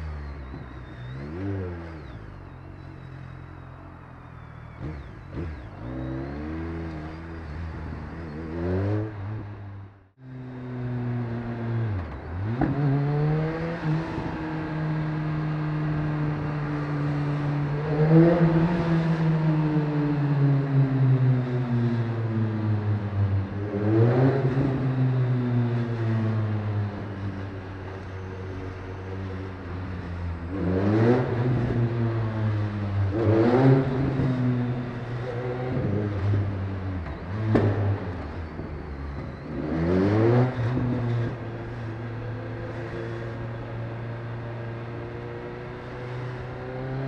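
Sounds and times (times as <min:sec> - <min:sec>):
motorcycle engine accelerating: 0:00.0 - 0:47.0.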